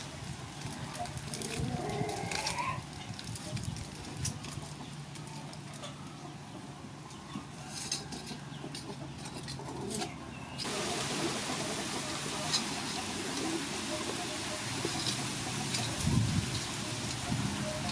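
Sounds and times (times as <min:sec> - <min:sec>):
aluminium foil crinkling: 0:00.5 - 0:05.8.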